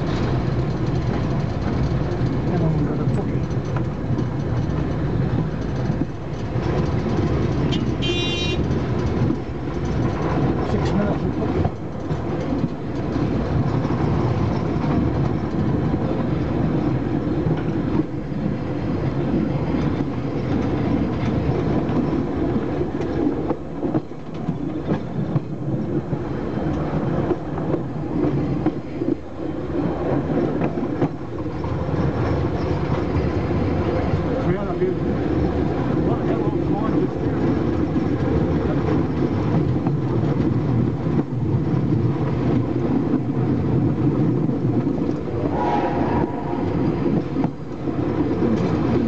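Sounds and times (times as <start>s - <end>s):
train wheels rumbling on rails: 0.0s - 49.0s
high-pitched wheel squeal: 45.4s - 47.5s.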